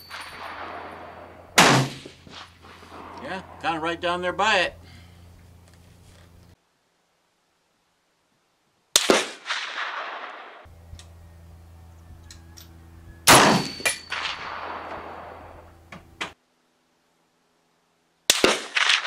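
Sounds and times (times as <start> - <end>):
rifle shots with long echo: 0.1 - 3.8, 8.9 - 10.7, 13.3 - 15.7, 18.3 - 19.0.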